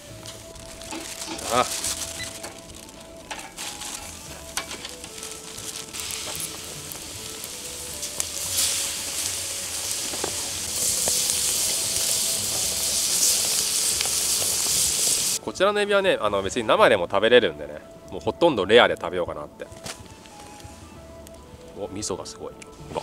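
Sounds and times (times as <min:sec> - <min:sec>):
seafood sizzling on a grill: 0:00.0 - 0:16.9, 0:17.6 - 0:23.0.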